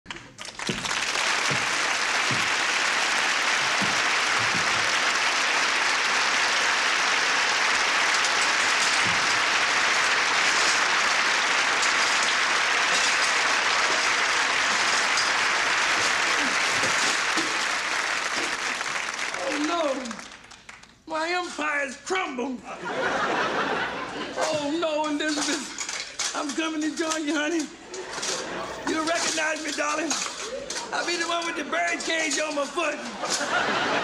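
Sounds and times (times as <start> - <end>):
audience applauding: 0.2 - 21.0, 28.1 - 34.0.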